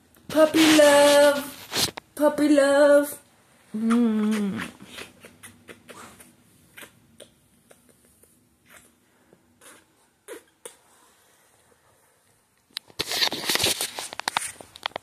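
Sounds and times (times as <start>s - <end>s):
soft clicks and rustles: 12.2s - 15.0s.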